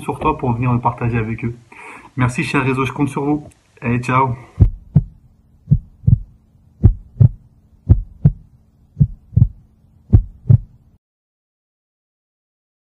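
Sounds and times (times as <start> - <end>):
faint low hum: 0.0 - 11.0
heartbeat thumps: 4.6 - 10.8.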